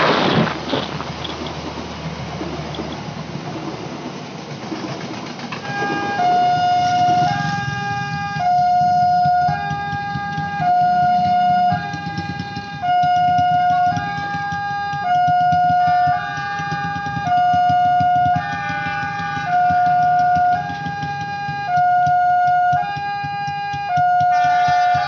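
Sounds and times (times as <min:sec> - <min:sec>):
passenger train rumbling past: 0:00.0 - 0:22.8
two-tone hi-lo siren: 0:05.6 - 0:25.0.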